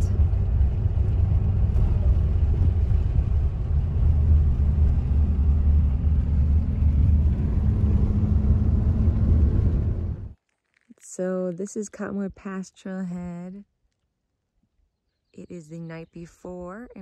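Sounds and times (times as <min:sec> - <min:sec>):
faint engine hum: 0:00.0 - 0:10.4
truck engine and road rumble: 0:00.0 - 0:10.4.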